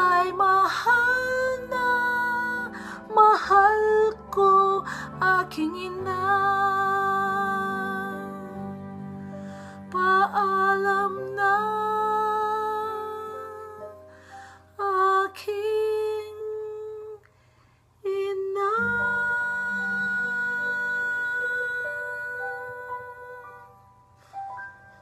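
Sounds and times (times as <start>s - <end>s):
woman singing long held notes: 0.0s - 8.9s, 14.7s - 17.2s, 18.0s - 23.8s
soft instrumental accompaniment: 0.0s - 17.2s, 18.3s - 25.0s.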